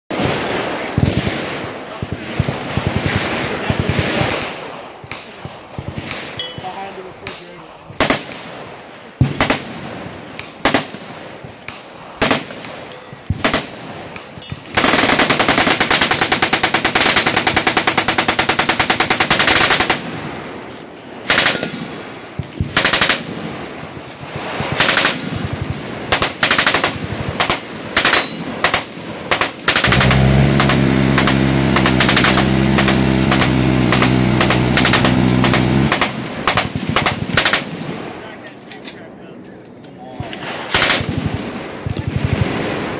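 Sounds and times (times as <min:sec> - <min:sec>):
machine-gun fire: 0:12.2 - 0:12.7, 0:13.3 - 0:13.9, 0:14.6 - 0:20.2, 0:26.1 - 0:37.8.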